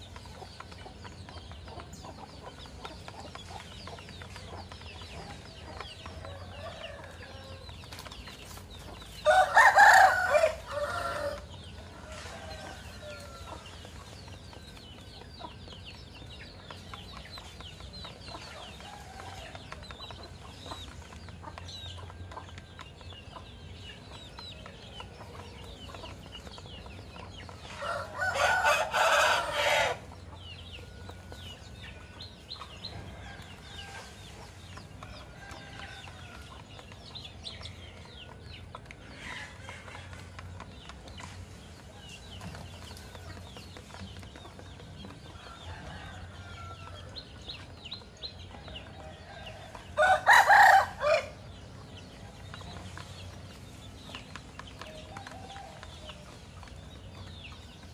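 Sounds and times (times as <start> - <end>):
rooster crowing: 9.2 - 11.5, 27.8 - 30.0, 50.0 - 51.4.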